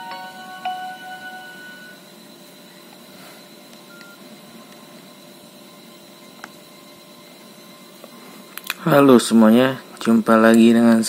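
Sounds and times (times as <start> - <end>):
faint high whine: 0.0 - 11.0
keypad beep: 3.9 - 4.2.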